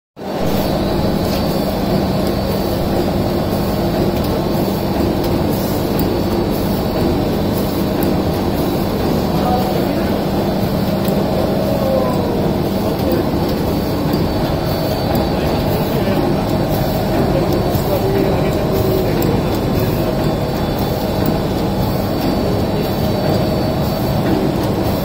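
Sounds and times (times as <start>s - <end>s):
machine droning: 0.2s - 25.0s
light mechanical ticks: 3.8s - 9.1s, 10.0s - 11.5s, 12.9s - 25.0s.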